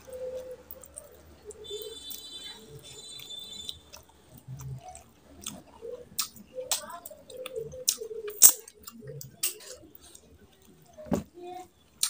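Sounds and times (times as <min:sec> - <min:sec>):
wet chewing and mouth clicks: 0:00.0 - 0:11.0.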